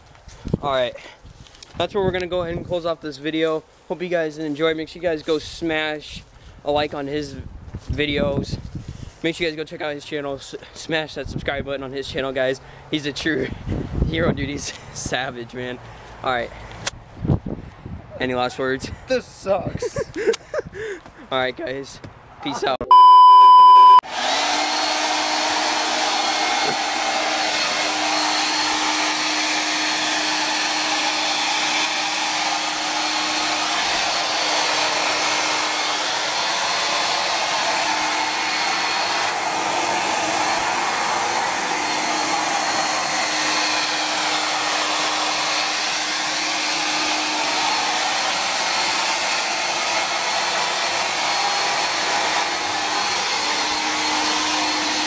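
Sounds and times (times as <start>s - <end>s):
short loud beep: 22.8s - 24.0s
hair dryer running: 22.9s - 55.0s.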